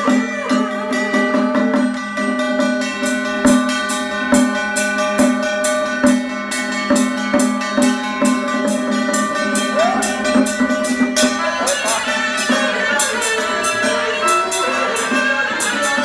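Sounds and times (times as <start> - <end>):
drum steady beat: 0.0 - 16.0
sustained ringing tones: 0.0 - 16.0.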